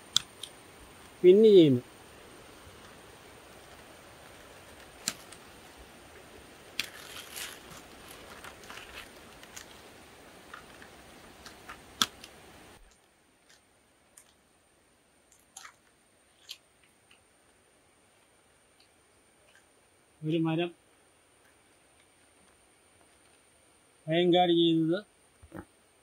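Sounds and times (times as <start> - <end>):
plastic sheeting crinkling: 3.4 - 13.6.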